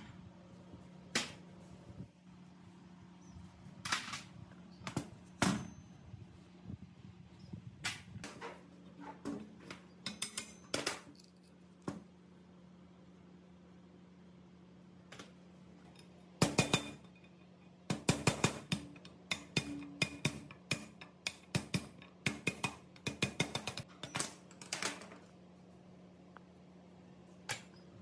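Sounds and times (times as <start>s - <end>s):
low steady hum: 0.0s - 28.0s.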